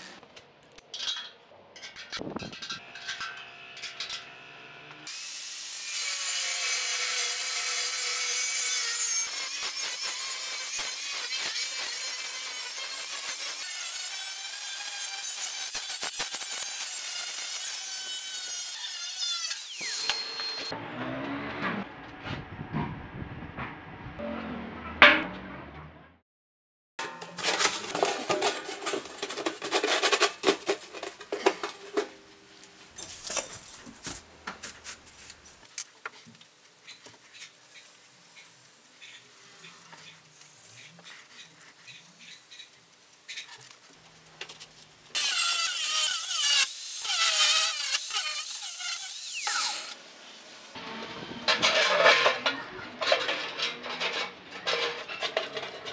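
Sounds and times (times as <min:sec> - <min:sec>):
angle grinder cutting steel: 0:02.8 - 0:20.8, 0:45.1 - 0:50.0
handling material on steel workbench: 0:27.0 - 0:36.4.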